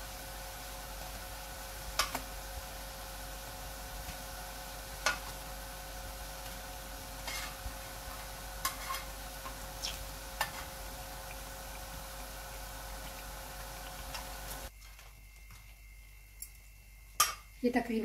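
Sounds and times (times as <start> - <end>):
fritters sizzling in oil: 0.0 - 14.8
metal tongs scraping griddle: 7.2 - 7.6, 8.6 - 9.1.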